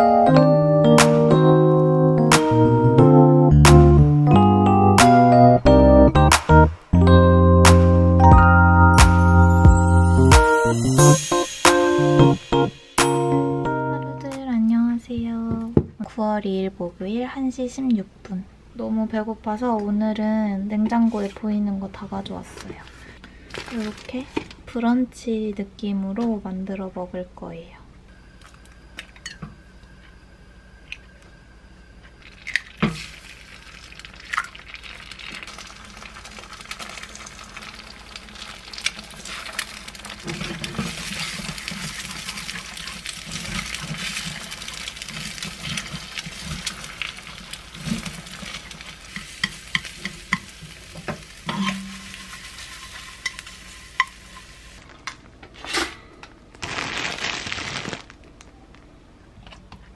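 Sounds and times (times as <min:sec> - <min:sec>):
eggs cracking: 0:32.2 - 0:50.5
eggs sizzling in a frying pan: 0:32.2 - 0:54.9
chopsticks scraping a pan: 0:39.1 - 0:50.8, 0:51.4 - 0:54.6.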